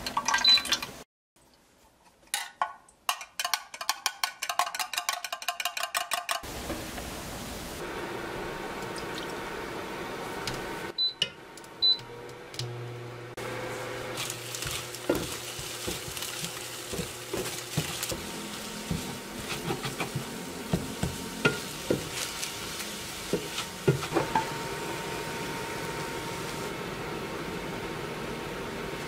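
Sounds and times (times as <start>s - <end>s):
egg sizzling in frying pan: 14.1s - 26.8s
wooden spatula scraping pan: 14.2s - 24.4s.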